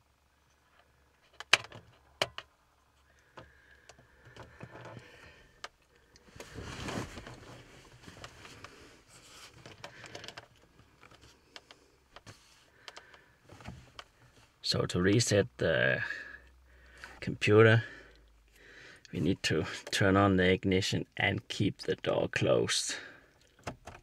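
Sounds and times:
handling scrapes and rustles: 0:06.2 - 0:09.8.

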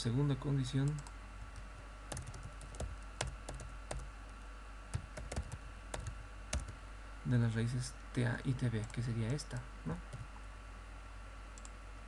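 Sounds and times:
computer keyboard typing: 0:02.1 - 0:04.1, 0:04.9 - 0:06.8.

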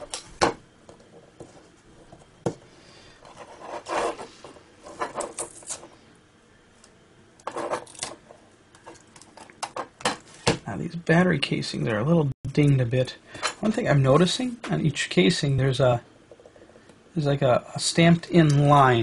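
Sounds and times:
fingers rubbing and scraping: 0:03.3 - 0:05.8.

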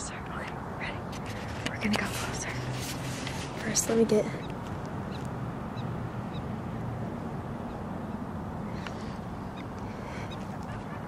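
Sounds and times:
steady low rumble: 0:00.0 - 0:11.0
prairie dogs chirping: 0:03.4 - 0:11.0.

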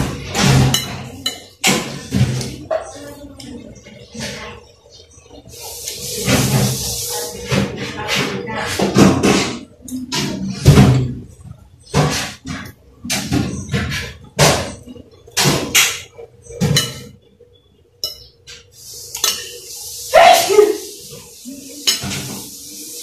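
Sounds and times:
cutlery scraping a glass plate: 0:16.6 - 0:17.1, 0:21.8 - 0:22.5.

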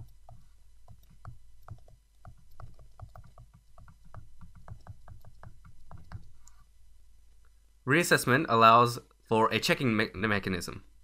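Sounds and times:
stylus tapping on tablet screen: 0:00.0 - 0:06.6.

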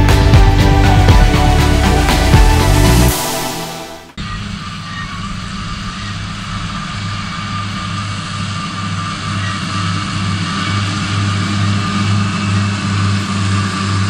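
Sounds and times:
mower whine: 0:00.0 - 0:14.0
tractor engine drone: 0:00.0 - 0:14.0.

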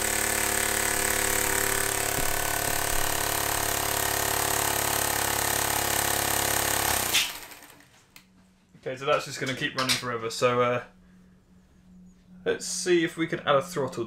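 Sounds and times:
small air engine buzzing: 0:00.0 - 0:07.8.

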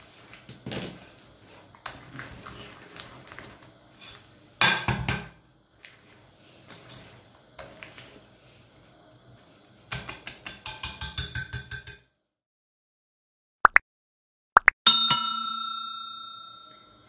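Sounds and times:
whisk clinking against glass bowl: 0:10.4 - 0:12.0.

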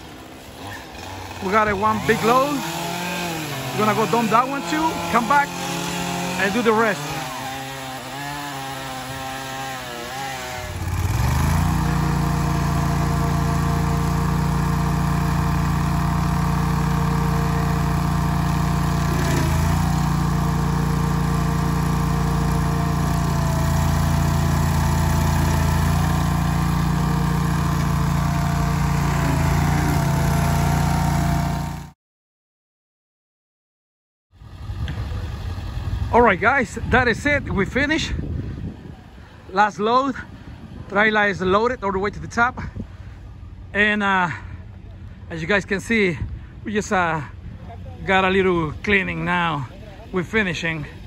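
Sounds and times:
chainsaw revving: 0:00.0 - 0:32.0, 0:34.4 - 0:37.2, 0:48.1 - 0:51.0
stump grinder engine grinding: 0:00.0 - 0:32.0, 0:34.4 - 0:43.7, 0:47.4 - 0:51.0.

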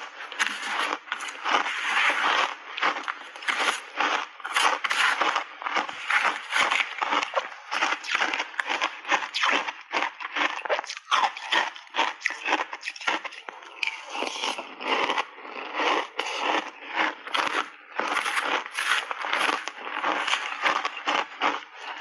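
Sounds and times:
chewing crunchy ice: 0:00.0 - 0:22.0.

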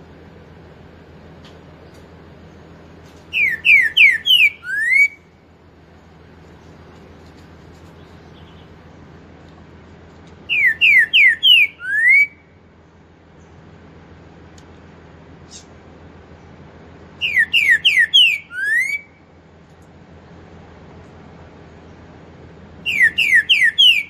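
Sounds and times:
bird singing whistles: 0:03.3 - 0:05.3, 0:10.5 - 0:12.4, 0:17.2 - 0:19.2, 0:22.8 - 0:24.0.

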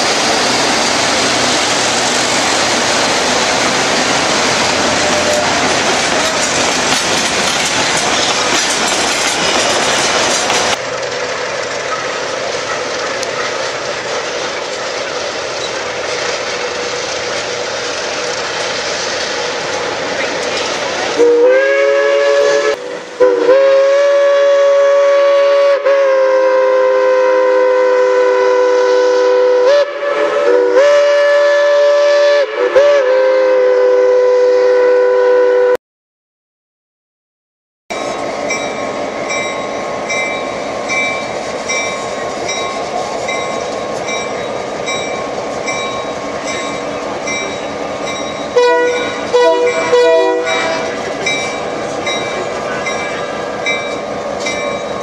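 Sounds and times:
train wheels clattering on rail: 0:00.0 - 0:21.2, 0:38.0 - 0:55.0
locomotive chime whistle: 0:04.9 - 0:06.4, 0:21.2 - 0:35.8, 0:38.0 - 0:55.0.

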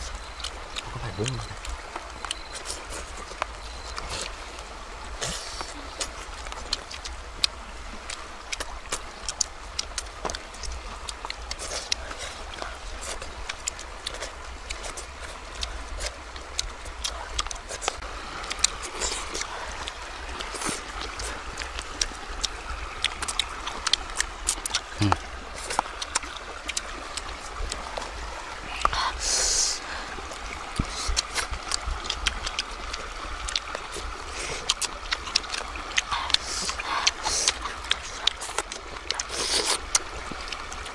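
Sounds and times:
lip smacks and chewing: 0:00.0 - 0:40.9
people eating by hand: 0:00.0 - 0:40.9
stream water running: 0:00.0 - 0:40.9.

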